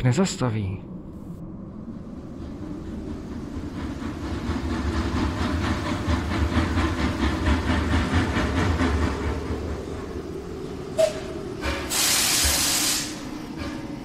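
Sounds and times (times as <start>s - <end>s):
train wheels clattering over rails: 2.4s - 14.0s
train brake squeal: 11.0s - 13.2s
loud hiss of steam: 11.0s - 13.4s.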